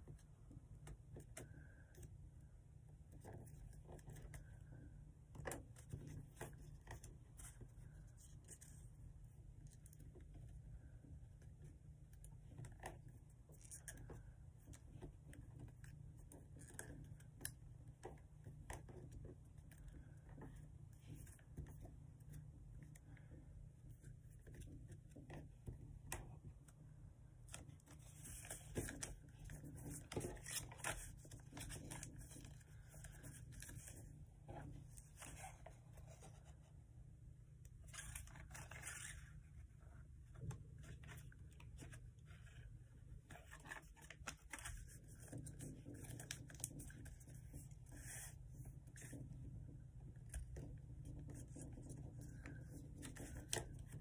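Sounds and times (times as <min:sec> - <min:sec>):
faint low hum: 0:00.0 - 0:54.0
paper being folded and creased: 0:27.4 - 0:36.7, 0:37.8 - 0:49.4, 0:50.2 - 0:54.0.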